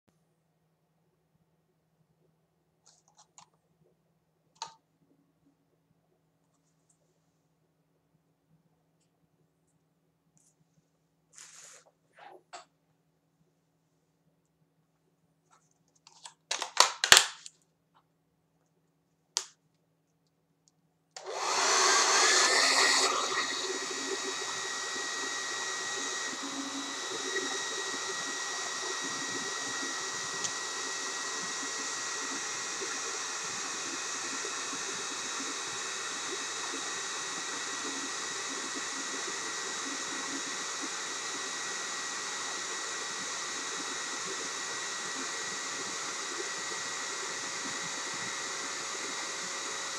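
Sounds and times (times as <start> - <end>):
hair dryer blowing: 21.2 - 49.9.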